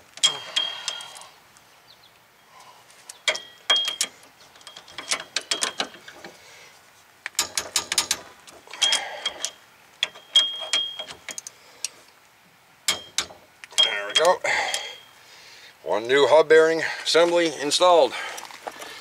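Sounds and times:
metal tools clinking: 0.2s - 1.3s, 3.2s - 6.3s, 7.4s - 11.5s, 12.9s - 15.2s.

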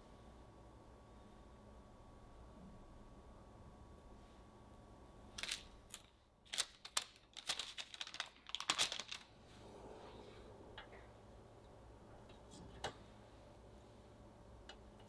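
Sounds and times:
cookie cutter crackling through dough: 5.4s - 9.3s.

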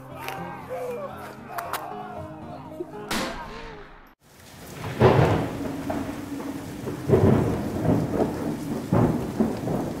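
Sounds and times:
steady rain: 4.2s - 10.0s
thunder rolling: 4.4s - 10.0s.

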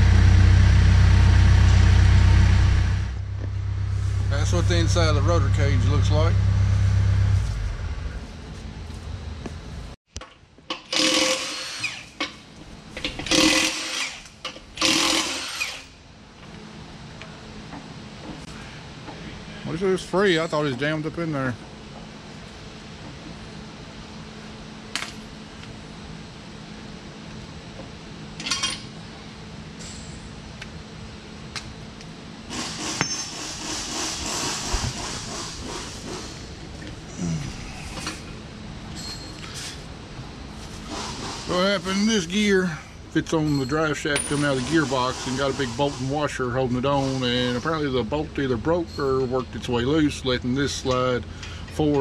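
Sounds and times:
cordless power tool running: 10.9s - 12.2s, 13.2s - 15.9s.

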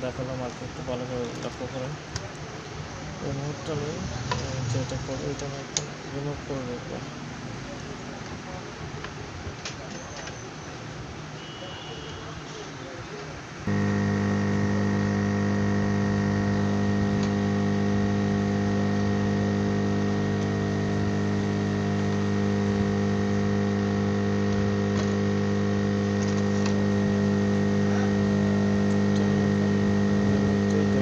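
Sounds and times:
electrical hum with buzz: 2.8s - 7.0s, 13.6s - 31.0s
high whine: 2.8s - 7.0s, 13.6s - 31.0s.

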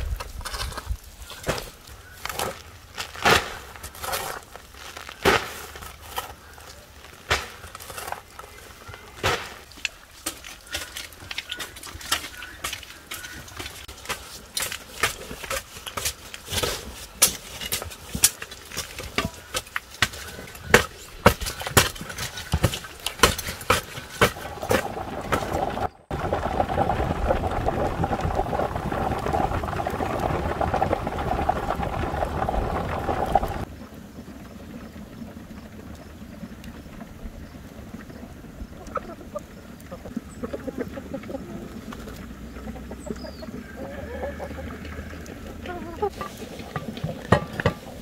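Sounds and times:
hoes chopping soil: 0.0s - 25.8s.

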